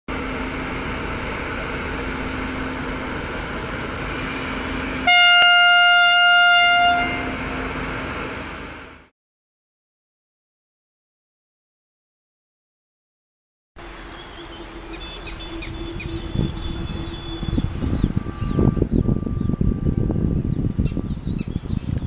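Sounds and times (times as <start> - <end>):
electric locomotive humming: 0.1 - 9.1, 13.8 - 22.0
locomotive horn blast: 4.0 - 8.0, 14.3 - 20.7.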